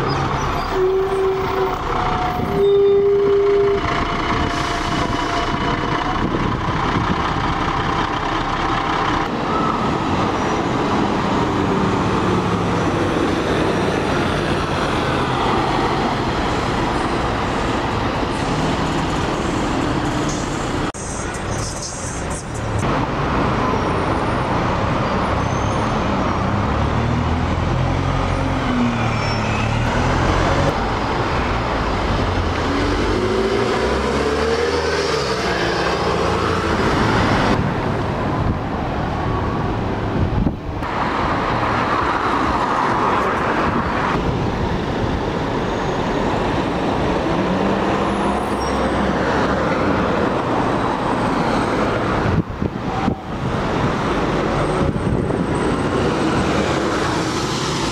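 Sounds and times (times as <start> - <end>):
bus engines accelerating: 0.0 - 57.9
road traffic noise: 0.0 - 57.9.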